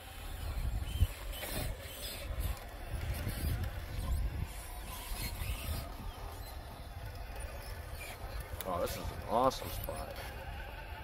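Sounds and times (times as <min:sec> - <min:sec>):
wind on microphone: 0:00.0 - 0:08.5
toy car motor whirring: 0:00.0 - 0:11.0.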